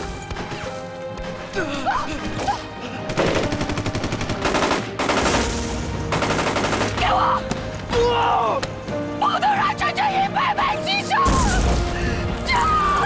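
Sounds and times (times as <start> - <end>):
film score music: 0.0 - 13.0
person shouting: 7.0 - 8.6.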